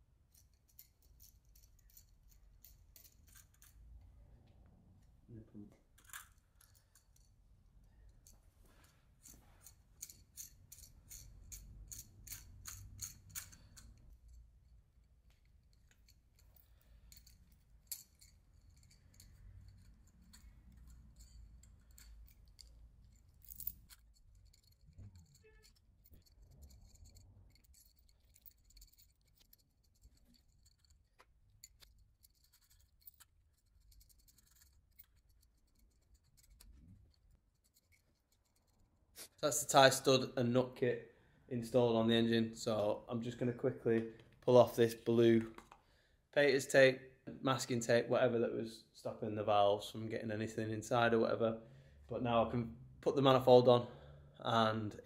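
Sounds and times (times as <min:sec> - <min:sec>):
socket ratchet clicking: 0:10.0 - 0:14.3.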